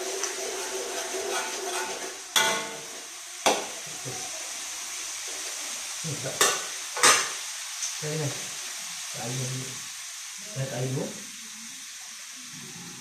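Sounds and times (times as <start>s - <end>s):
metal spatula scraping wok: 0.0s - 3.8s
food sizzling in a wok: 0.0s - 13.0s.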